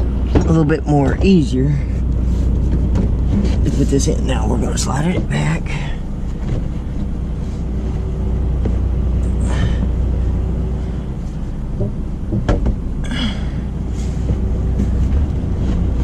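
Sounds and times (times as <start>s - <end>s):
idling truck rumble: 0.0s - 16.0s
refrigerator scraping: 0.0s - 16.0s
sharp knocks: 11.8s - 12.9s.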